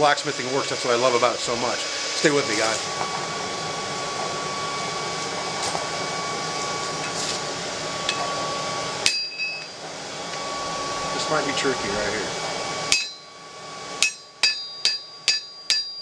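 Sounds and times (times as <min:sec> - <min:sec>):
steady hum: 0:00.0 - 0:16.0
hammer striking steel on anvil: 0:09.0 - 0:09.7, 0:12.9 - 0:13.3, 0:14.0 - 0:16.0.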